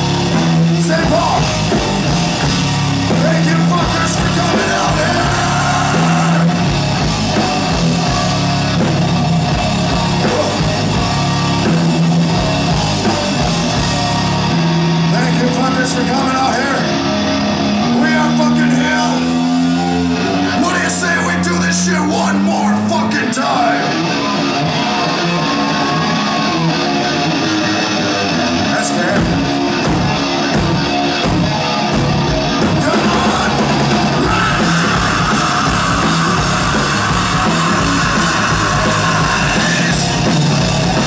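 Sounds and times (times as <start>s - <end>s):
heavy metal band playing: 0.0s - 41.0s
person yelling vocals: 3.2s - 6.6s, 32.8s - 40.1s.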